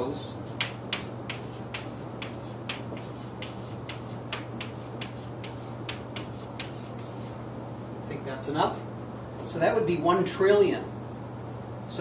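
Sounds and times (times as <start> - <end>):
steady low hum: 0.0 - 12.0
chalk clicking on blackboard: 0.5 - 7.4.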